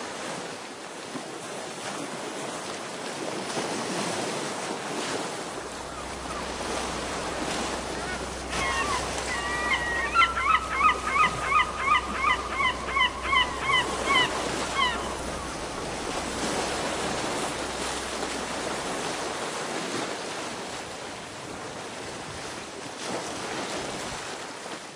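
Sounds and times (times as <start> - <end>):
waves breaking against rocks: 0.0 - 24.9
bird honking calls: 5.6 - 19.4.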